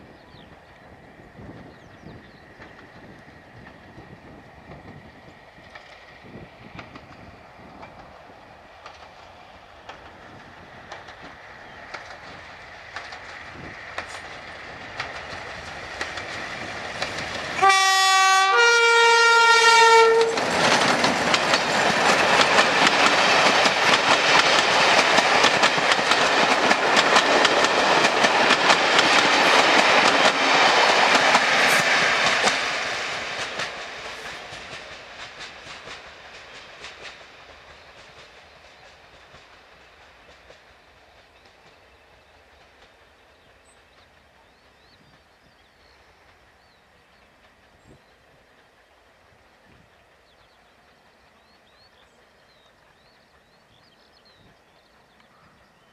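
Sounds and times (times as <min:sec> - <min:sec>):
diesel locomotive engine: 0:00.0 - 0:55.9
wheels clicking over rail joints: 0:06.7 - 0:17.7, 0:20.0 - 0:41.8
two-tone train horn: 0:17.6 - 0:20.4.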